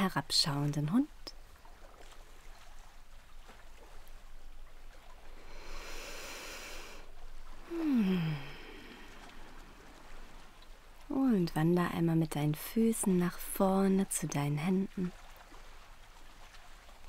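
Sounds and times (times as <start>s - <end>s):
woman breathing in: 5.4s - 7.1s, 7.7s - 9.7s
woman sighing: 7.6s - 9.5s.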